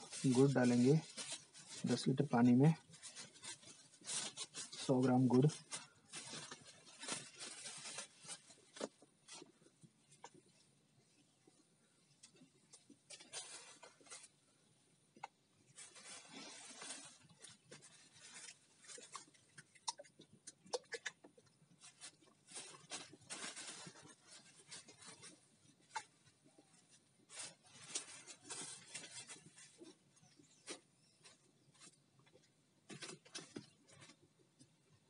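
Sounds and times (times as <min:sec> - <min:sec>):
rustling and scraping: 0:00.0 - 0:14.8, 0:15.6 - 0:35.0.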